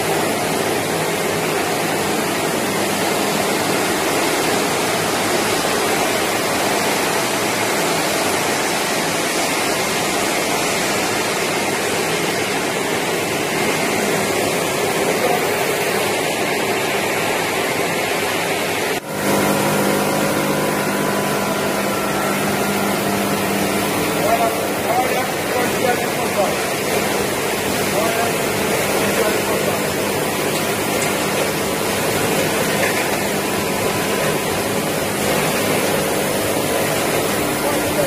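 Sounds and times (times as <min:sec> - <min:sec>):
machine hum with held tones: 0:19.0 - 0:38.0.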